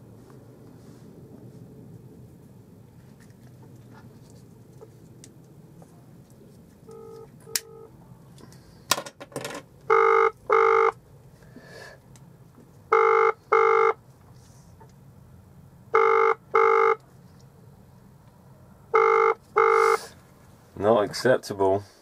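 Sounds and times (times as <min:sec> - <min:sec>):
phone ringing tone: 0:06.9 - 0:07.9, 0:09.9 - 0:11.0, 0:12.9 - 0:14.0, 0:16.0 - 0:17.0, 0:18.9 - 0:20.0
short beeps: 0:09.9 - 0:11.0, 0:12.9 - 0:14.0, 0:16.0 - 0:17.0, 0:19.0 - 0:20.0.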